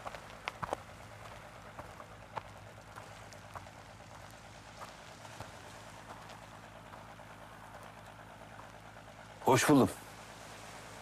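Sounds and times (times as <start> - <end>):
footsteps crunching on gravel: 0.0 - 7.1
low steady outdoor hiss: 0.0 - 11.0.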